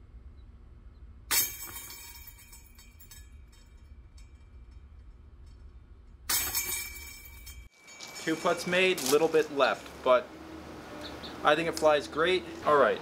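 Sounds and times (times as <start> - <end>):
chains clinking and ringing: 1.3 - 9.4
disc hitting basket chains: 1.3 - 9.6.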